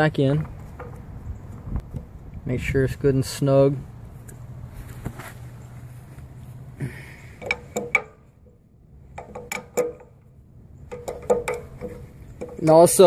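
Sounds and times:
sharp metallic clicks: 0:07.4 - 0:08.3, 0:09.0 - 0:13.0.

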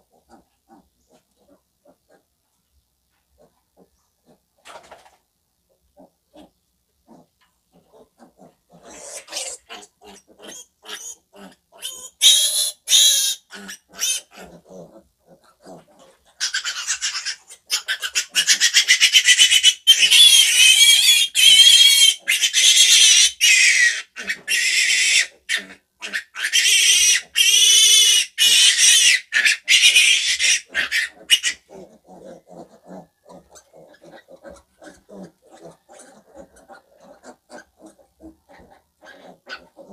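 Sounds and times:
piglet squealing: 0:08.7 - 0:39.9.

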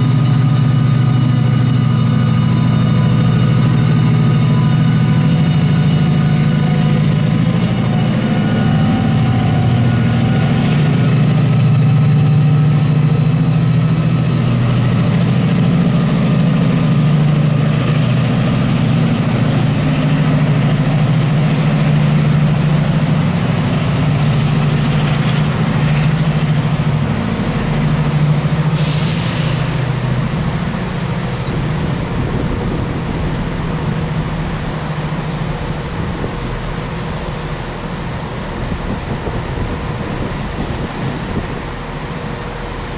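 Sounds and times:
diesel train engine running: 0:00.0 - 0:42.9
air hissing: 0:17.6 - 0:19.9, 0:28.6 - 0:31.3.

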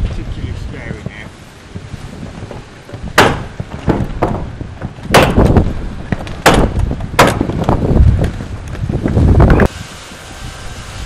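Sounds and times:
wind buffeting microphone: 0:00.0 - 0:11.0
bangs on wooden roof: 0:02.3 - 0:08.4.

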